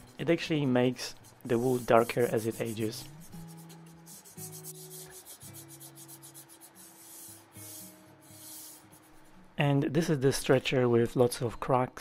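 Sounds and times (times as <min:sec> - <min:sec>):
soft background music: 0:00.0 - 0:12.0
cloth rubbing wood: 0:01.1 - 0:09.4.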